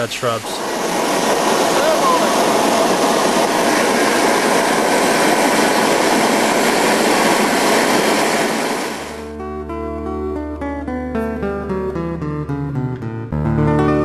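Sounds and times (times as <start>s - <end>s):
jet engine roaring: 0.0s - 9.3s
acoustic guitar music: 9.2s - 14.0s.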